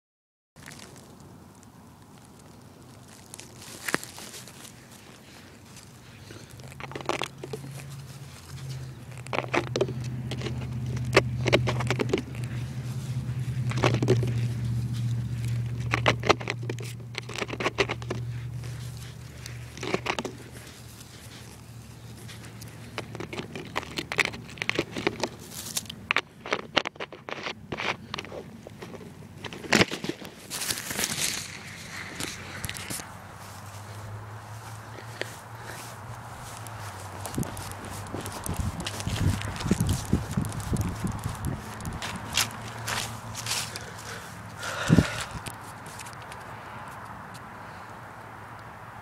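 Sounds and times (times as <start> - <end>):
low steady hum: 0.6 - 46.7
crackling clicks and rustles: 0.6 - 47.9.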